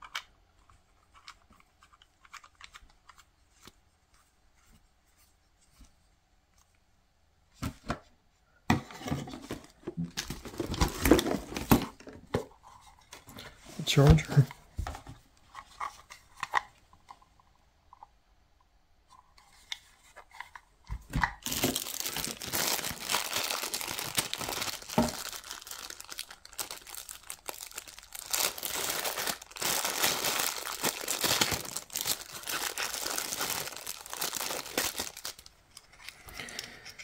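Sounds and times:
plastic bag crinkling: 0:21.4 - 0:36.7.

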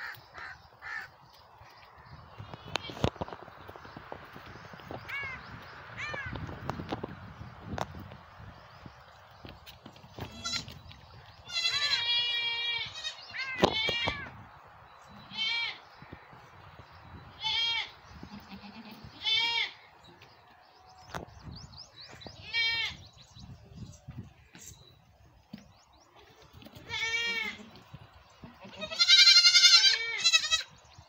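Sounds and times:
goat kids bleating: 0:10.2 - 0:10.8, 0:11.4 - 0:14.3, 0:15.2 - 0:15.8, 0:17.3 - 0:19.8, 0:22.4 - 0:23.0, 0:26.2 - 0:27.8, 0:28.4 - 0:30.7.

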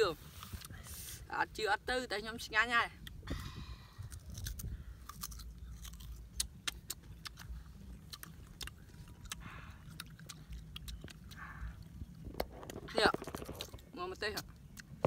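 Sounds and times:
person chewing crunchy fruit: 0:03.0 - 0:15.0.

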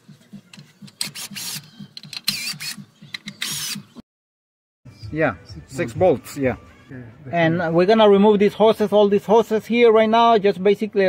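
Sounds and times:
power tool whining: 0:01.0 - 0:04.0.

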